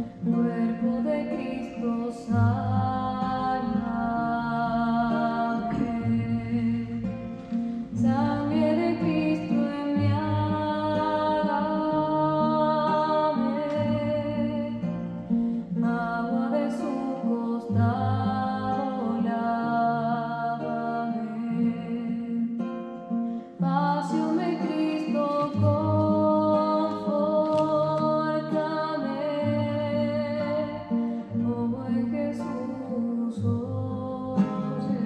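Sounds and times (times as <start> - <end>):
person singing a hymn: 0.0 - 7.1, 23.6 - 35.0
acoustic guitar accompaniment: 0.0 - 35.0.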